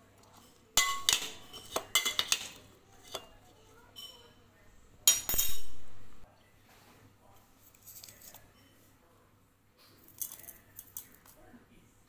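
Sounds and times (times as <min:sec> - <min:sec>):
cookware clattering: 0:00.3 - 0:04.4, 0:05.0 - 0:06.2.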